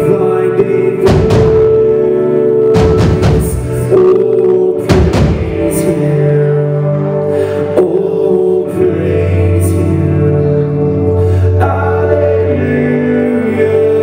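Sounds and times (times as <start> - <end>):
band playing held chords: 0.0 - 14.0
heavy large drum hits: 1.1 - 1.9, 2.8 - 3.7, 4.9 - 5.7.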